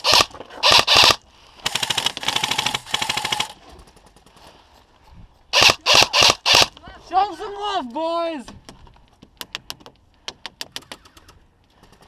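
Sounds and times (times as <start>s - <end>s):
airsoft gun firing full auto: 0.0s - 3.6s, 5.6s - 6.7s.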